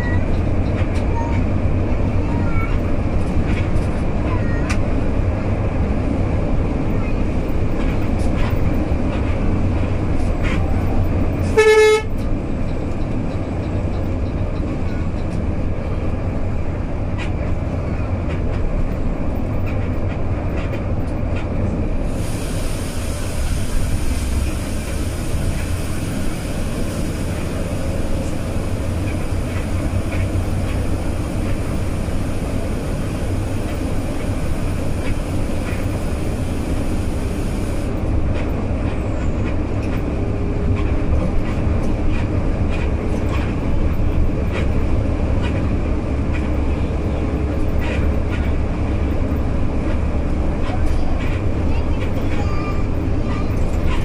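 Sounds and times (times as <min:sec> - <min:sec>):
bus engine and road rumble: 0:00.0 - 0:54.0
vehicle horn blast: 0:11.6 - 0:12.1.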